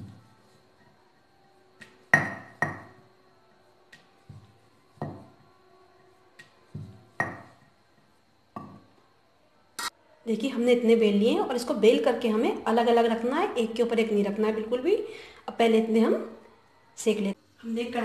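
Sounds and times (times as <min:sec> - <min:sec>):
rolling pin knocking on board: 0:01.8 - 0:03.0, 0:03.9 - 0:05.4, 0:06.4 - 0:07.7, 0:08.6 - 0:08.9.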